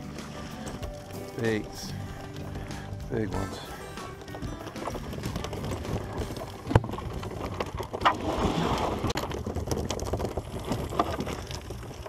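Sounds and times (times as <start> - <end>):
net knocking and rattling: 4.0 - 8.2
water splashing off net: 4.8 - 9.6.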